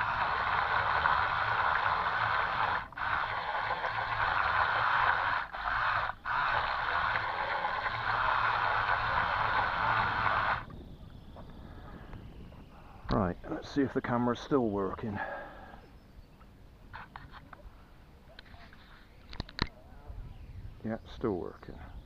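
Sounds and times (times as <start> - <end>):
toy boat motors whirring: 0.0 - 10.7.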